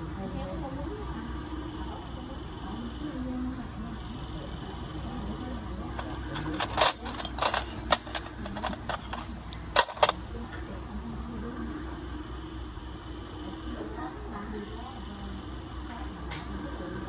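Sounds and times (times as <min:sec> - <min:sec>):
metal tools clinking: 0:06.0 - 0:10.2.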